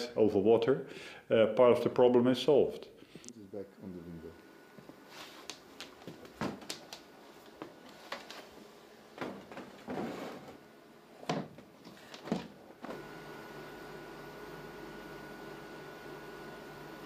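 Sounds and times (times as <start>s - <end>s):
steady hum with high whine: 0.0s - 17.0s.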